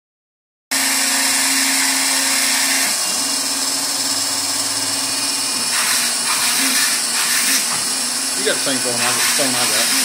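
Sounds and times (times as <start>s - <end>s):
foam cutter spindle motor whine: 0.8s - 10.0s.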